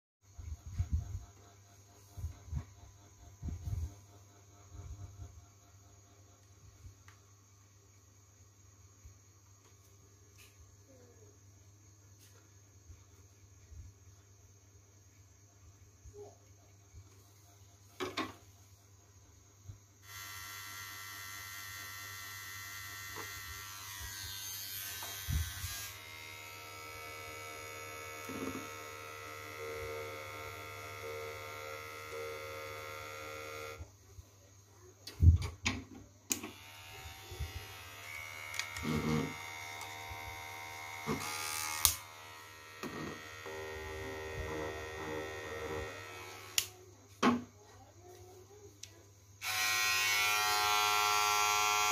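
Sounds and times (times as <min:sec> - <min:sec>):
electric hair clippers buzzing: 0:20.0 - 0:33.9, 0:36.3 - 0:46.8, 0:49.4 - 0:51.9.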